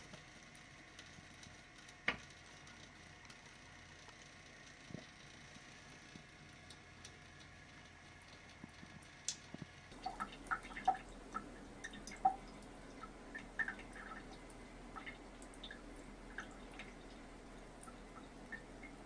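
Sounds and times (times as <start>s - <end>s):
small water plinks and splashes: 6.6s - 19.0s
tap water trickling into sink: 10.0s - 19.0s.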